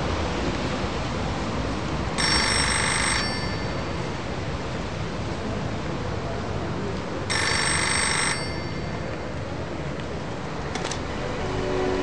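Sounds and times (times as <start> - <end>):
steady background hiss: 0.0 - 12.0
payphone ringing: 2.2 - 4.2, 7.3 - 9.4.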